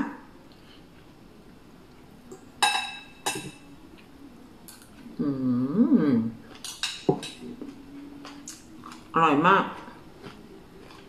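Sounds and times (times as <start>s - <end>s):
spoon clinking against dish: 2.6s - 3.7s
person humming while chewing: 4.9s - 6.6s.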